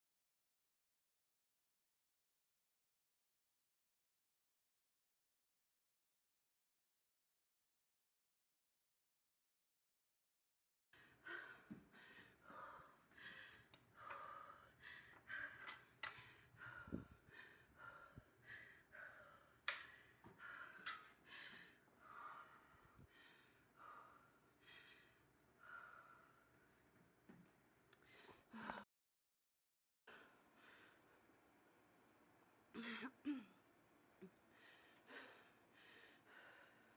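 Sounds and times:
person panting: 0:34.5 - 0:36.9.

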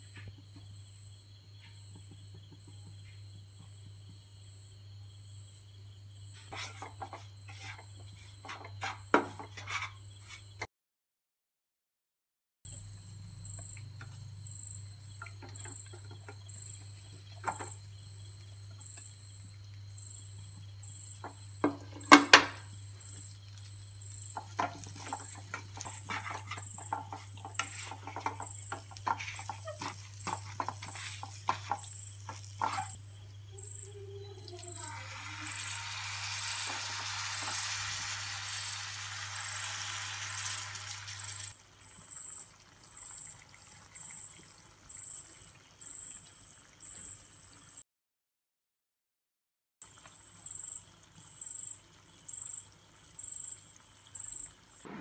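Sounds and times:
spatula scraping a wok: 0:06.4 - 0:10.7, 0:24.0 - 0:33.0, 0:34.6 - 0:41.5
liquid hissing in hot wok: 0:20.8 - 0:33.0, 0:34.5 - 0:43.3.

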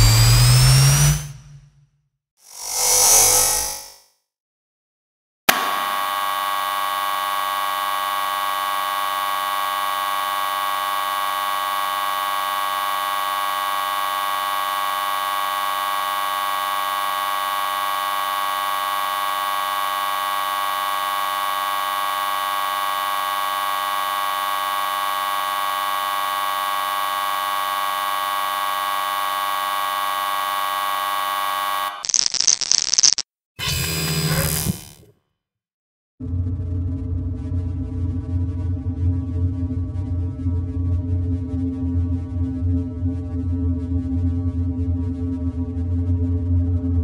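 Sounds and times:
high-pitched electrical buzz: 0:00.0 - 0:01.6, 0:02.5 - 0:04.0, 0:05.5 - 0:35.0.

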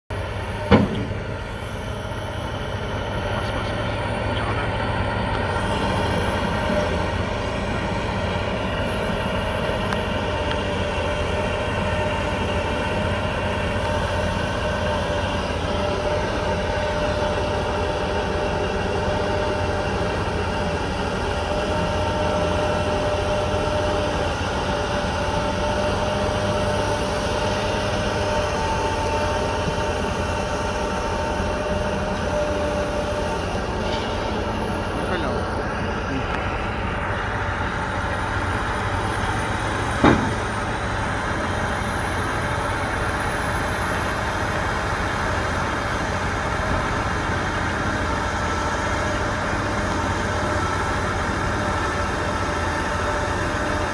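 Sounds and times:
heavy diesel machinery droning: 0:00.1 - 0:53.9
steady mechanical whine: 0:00.1 - 0:53.9
sharp knock: 0:40.0 - 0:40.4.

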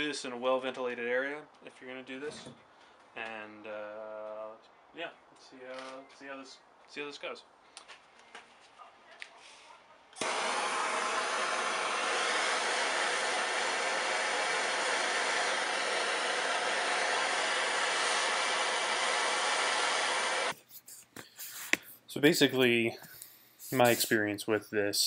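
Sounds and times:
gas torch hissing: 0:10.2 - 0:20.6, 0:23.6 - 0:24.2.

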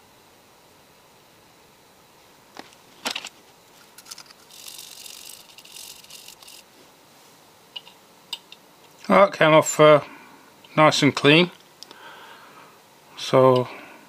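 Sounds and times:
scratchy rattling of tweezers: 0:03.8 - 0:06.6.

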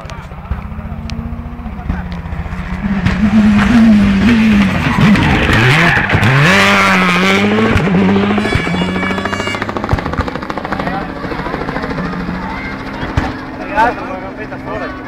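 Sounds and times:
helicopter rotor chop: 0:00.0 - 0:15.0
rally car engine revving past: 0:00.6 - 0:10.1.

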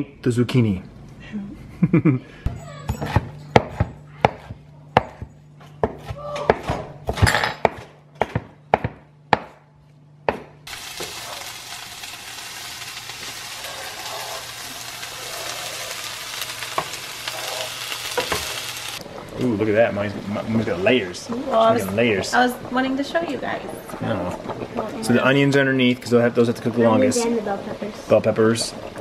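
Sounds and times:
knife chopping on a cutting board: 0:02.9 - 0:10.6
vegetables sizzling in a frying pan: 0:10.7 - 0:23.4, 0:24.1 - 0:29.0.

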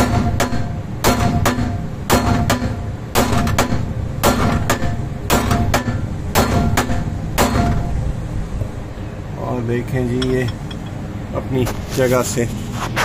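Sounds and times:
hammer striking metal bolt: 0:10.2 - 0:11.0.

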